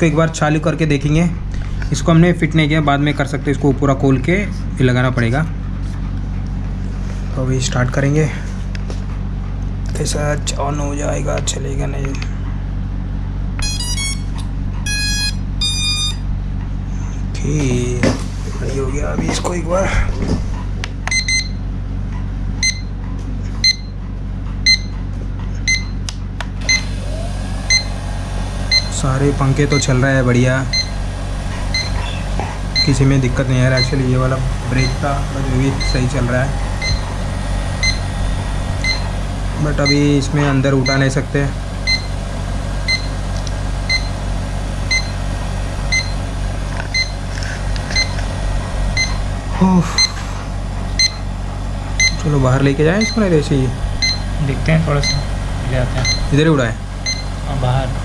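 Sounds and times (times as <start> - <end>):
drone motors whining: 0.0 - 24.0, 24.6 - 58.0
steady low hum: 0.0 - 58.0
short high electronic beeps: 13.6 - 16.2.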